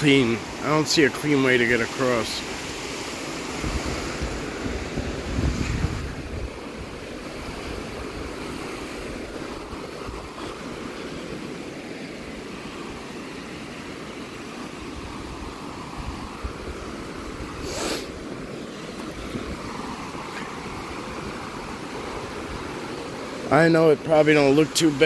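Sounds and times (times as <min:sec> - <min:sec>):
stream water rushing: 0:00.0 - 0:25.0
brief hiss: 0:17.6 - 0:18.2.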